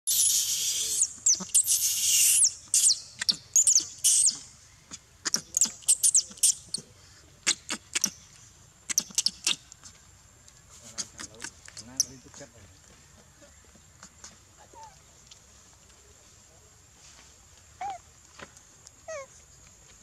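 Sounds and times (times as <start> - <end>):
monkey screaming and squealing: 0.1 - 4.6, 5.2 - 6.8, 7.4 - 8.2, 8.9 - 9.6.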